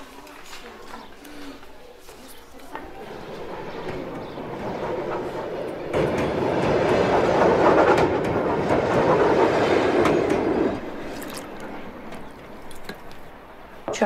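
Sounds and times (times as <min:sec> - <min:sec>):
train carriages rumbling past: 0:02.7 - 0:14.0.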